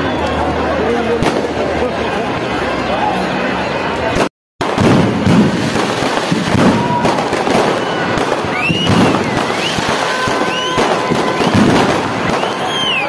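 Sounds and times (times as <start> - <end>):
fireworks bursting: 1.2 - 1.8, 4.1 - 13.0
fireworks crackle: 4.1 - 13.0.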